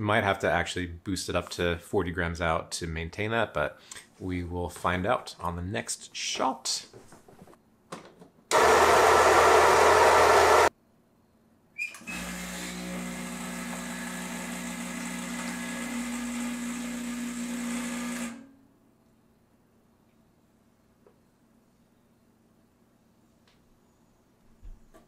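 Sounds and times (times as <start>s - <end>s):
coffee grinder grinding: 8.5s - 10.7s, 12.0s - 18.4s
espresso machine pump humming: 8.5s - 10.7s, 12.1s - 18.4s.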